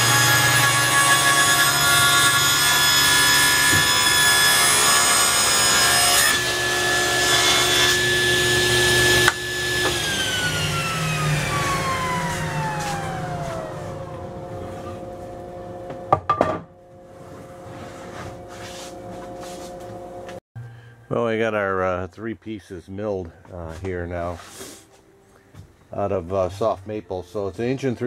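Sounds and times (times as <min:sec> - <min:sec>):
table saw cutting wood: 0:00.0 - 0:15.9
saw blade whine coasting down: 0:05.2 - 0:16.0.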